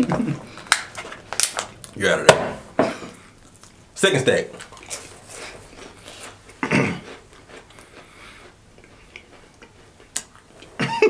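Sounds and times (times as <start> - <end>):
crackers being chewed: 0.1 - 2.0, 3.3 - 3.8, 4.5 - 10.8.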